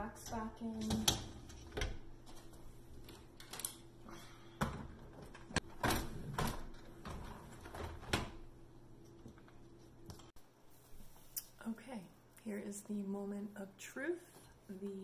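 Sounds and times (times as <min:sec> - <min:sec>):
dish racks rattling and clunking: 0:04.6 - 0:08.5.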